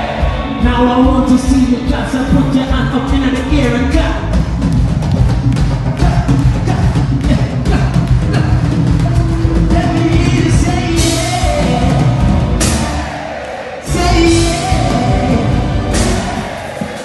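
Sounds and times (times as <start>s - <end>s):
reggae band with vocals: 5.8s - 13.2s, 13.8s - 17.0s.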